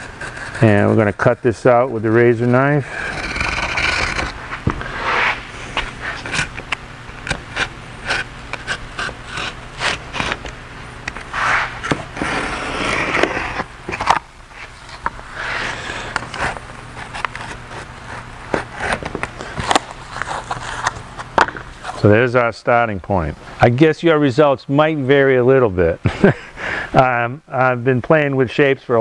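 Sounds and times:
knife slicing through cardboard: 11.3s - 14.2s.

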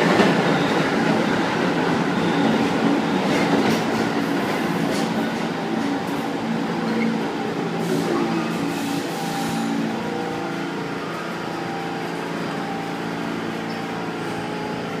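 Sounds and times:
subway train stopping: 0.0s - 15.0s
air brake hiss: 7.8s - 9.7s.

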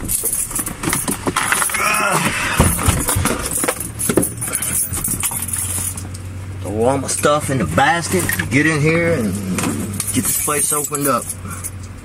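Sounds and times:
keys jangling: 0.0s - 6.1s, 9.7s - 12.0s.

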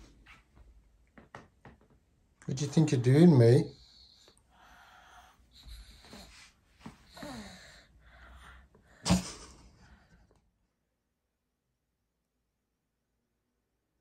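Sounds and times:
child's breathy vocal noises: 4.4s - 9.0s.

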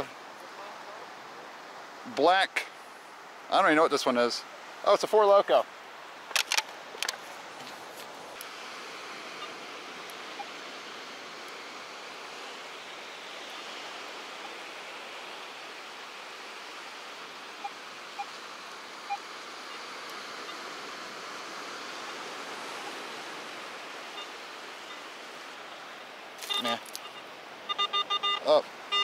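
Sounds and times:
ocean surf washing: 0.0s - 29.0s
metal detector beeps: 10.3s - 10.6s, 26.4s - 29.0s.

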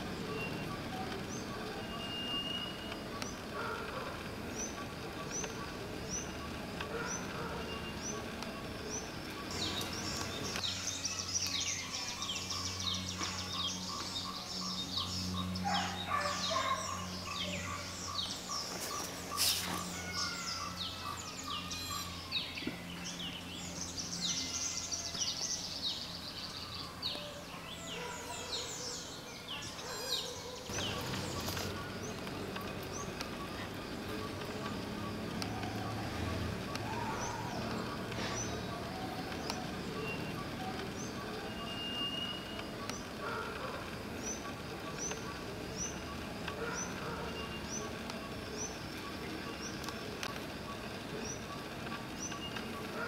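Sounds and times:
birds chirping and twittering: 0.0s - 53.0s.

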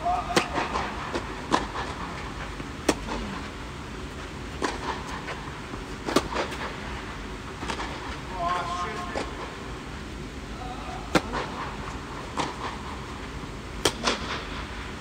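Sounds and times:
racket hitting tennis ball: 0.3s - 3.2s, 4.5s - 5.4s, 6.0s - 6.7s, 11.1s - 13.0s, 13.8s - 14.5s
tennis ball bouncing: 2.8s - 3.2s.

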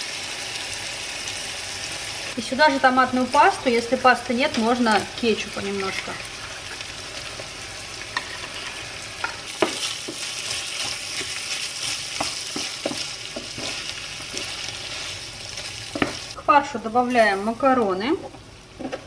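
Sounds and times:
meat sizzling in a frying pan: 0.0s - 16.4s
spatula scraping a pan: 8.1s - 15.2s.

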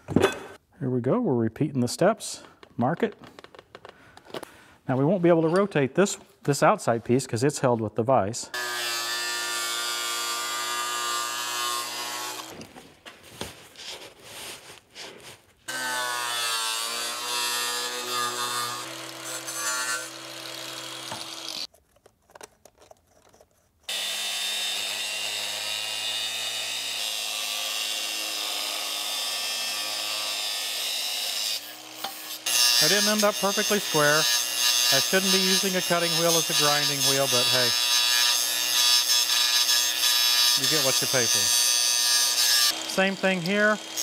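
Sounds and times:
angle grinder cutting steel: 8.6s - 12.7s, 15.7s - 21.7s, 23.9s - 44.0s.

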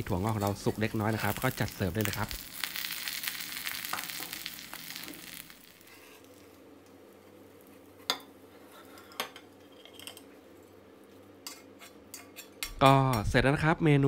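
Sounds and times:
omelette sizzling in frying pan: 0.0s - 9.3s.

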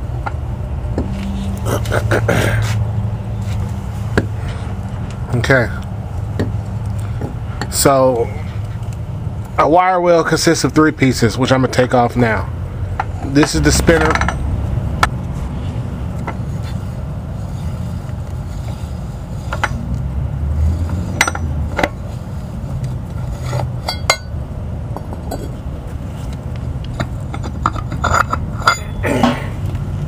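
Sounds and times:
steady low rumble: 0.0s - 30.0s
metallic clinks and scrapes: 20.6s - 24.4s, 25.0s - 26.4s, 27.0s - 29.5s.

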